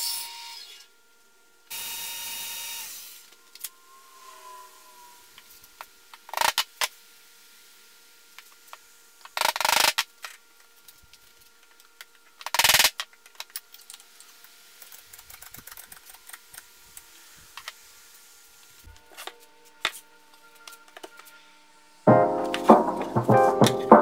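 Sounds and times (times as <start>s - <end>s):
faint steady hum: 0.0s - 15.1s
piano music: 22.1s - 24.0s.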